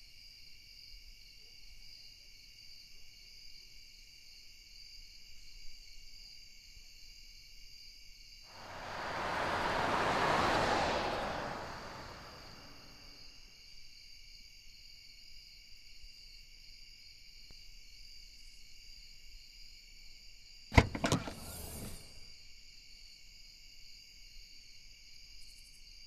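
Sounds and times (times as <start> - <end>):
car trunk latch click: 20.8 - 21.4
trunk lid swinging open: 20.8 - 22.0.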